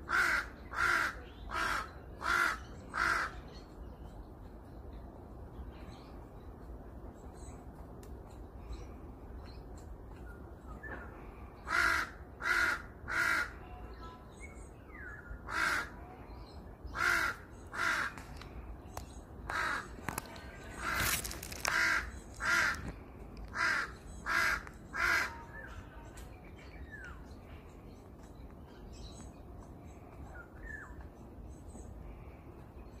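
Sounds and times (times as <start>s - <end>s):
crow cawing: 0.1s - 3.3s, 11.7s - 13.6s, 15.5s - 15.9s, 17.0s - 18.2s, 19.5s - 20.0s, 20.8s - 22.9s, 23.5s - 25.4s.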